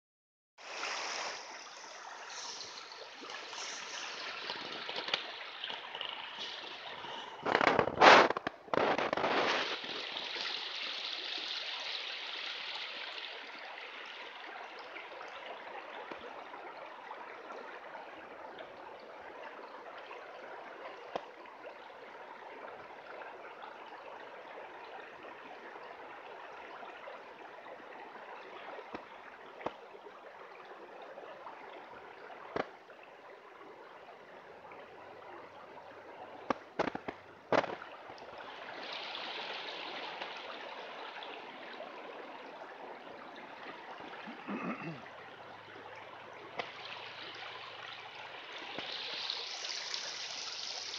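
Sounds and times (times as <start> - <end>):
creek water running: 0.6 - 50.9.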